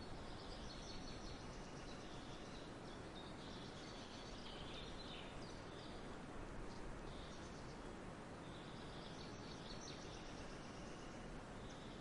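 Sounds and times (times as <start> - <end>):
small birds chirping: 0.0 - 12.0
steady low hiss: 0.0 - 12.0.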